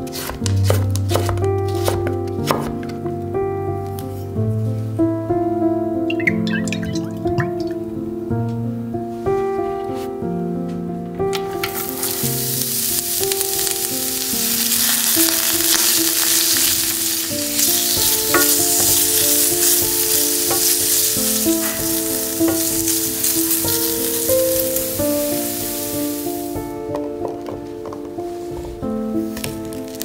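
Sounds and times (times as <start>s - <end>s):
soft background music: 0.1s - 30.0s
vegetables sizzling in oil: 11.4s - 26.7s
wooden spatula stirring: 14.4s - 23.8s.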